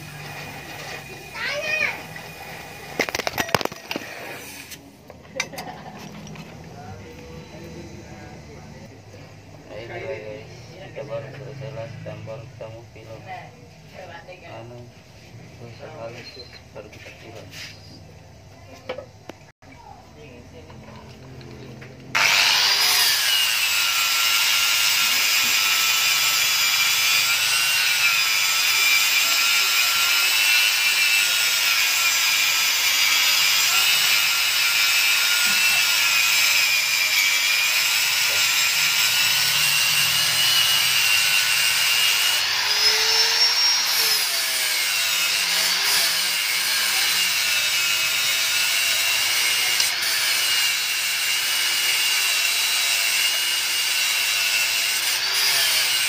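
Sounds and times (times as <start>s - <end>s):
angle grinder cutting metal: 0.0s - 9.0s, 21.2s - 56.0s.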